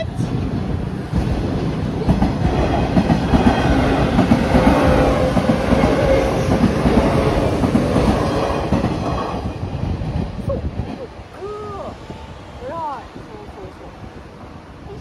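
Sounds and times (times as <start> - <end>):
train steady whine: 0.0 - 15.0
train wheels clattering: 0.3 - 11.1.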